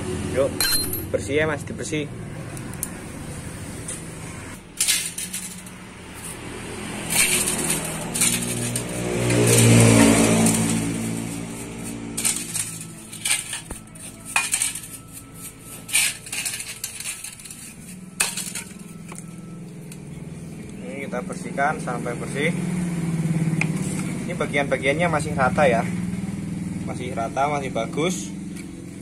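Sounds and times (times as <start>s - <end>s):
motor vehicle engine passing: 0.0s - 29.0s
metal clinking and scraping: 0.6s - 1.2s, 3.9s - 20.4s.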